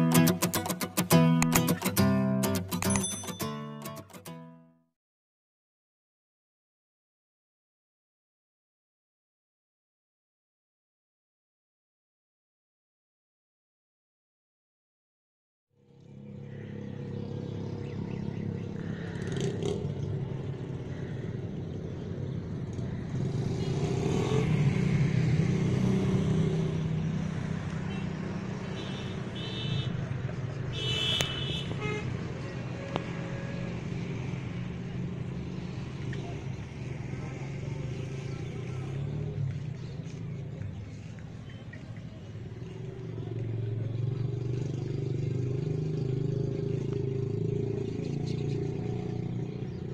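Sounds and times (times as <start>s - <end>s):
vehicle horn toots: 27.9s - 30.0s, 30.7s - 32.2s.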